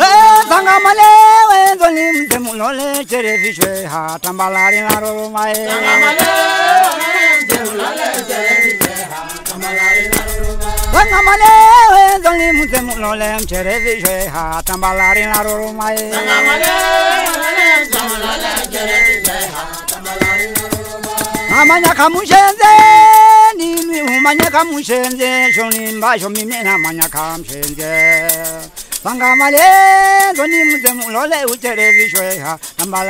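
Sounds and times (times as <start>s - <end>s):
shaken rattle: 0.0s - 33.0s
group singing folk song: 4.6s - 31.0s.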